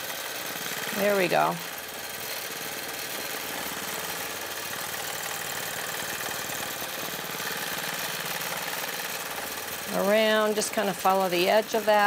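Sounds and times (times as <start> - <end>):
quilting machine stitching: 0.0 - 12.0.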